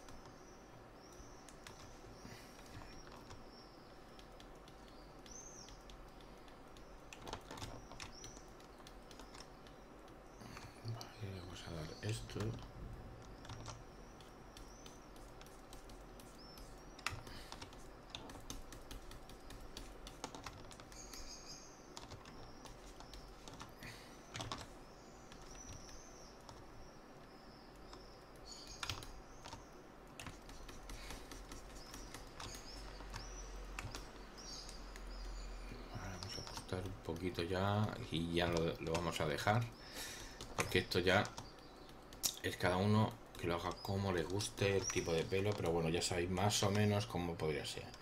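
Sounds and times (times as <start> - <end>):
mouse and keyboard clicks: 24.3 - 24.7, 27.8 - 35.4.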